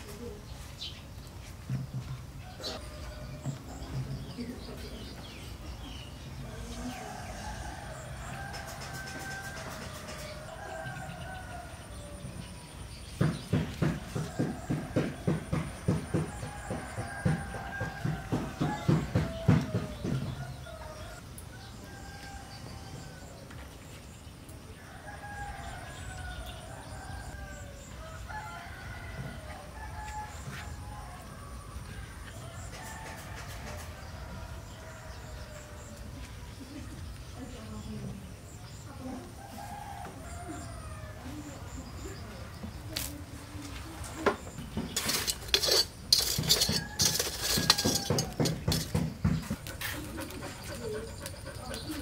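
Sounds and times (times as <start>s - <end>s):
rooster crowing: 6.6s - 12.5s, 14.0s - 23.5s, 24.8s - 36.1s, 39.3s - 41.6s, 45.1s - 49.0s
kitchen utensils clinking: 44.9s - 49.1s.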